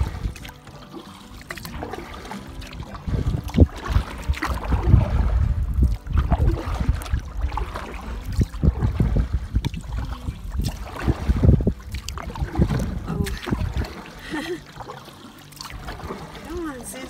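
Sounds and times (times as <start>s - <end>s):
wind rumble on microphone: 0.0s - 0.6s, 2.8s - 14.0s
paddle strokes splashing: 0.0s - 17.0s
river current rushing: 0.0s - 17.0s.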